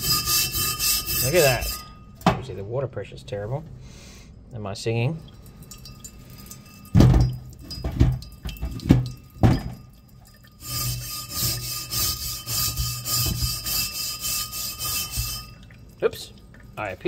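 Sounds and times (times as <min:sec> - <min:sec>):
wire brush scrubbing metal: 0:00.0 - 0:02.0, 0:10.6 - 0:17.0
running tap water: 0:05.1 - 0:17.0.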